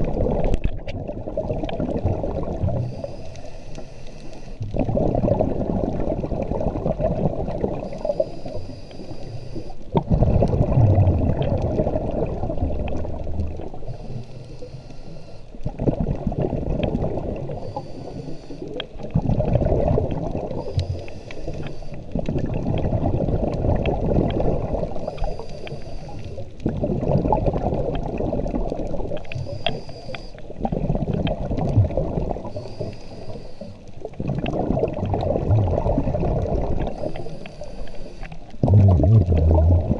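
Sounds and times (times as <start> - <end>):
exhaled bubbles underwater: 0.0 - 3.9, 4.6 - 14.9, 15.5 - 39.9
regulator hiss on inhale: 2.8 - 4.8, 7.8 - 9.9, 13.7 - 15.7, 17.4 - 19.0, 20.5 - 22.2, 24.2 - 26.6, 29.1 - 30.6, 32.4 - 34.0, 36.8 - 38.6.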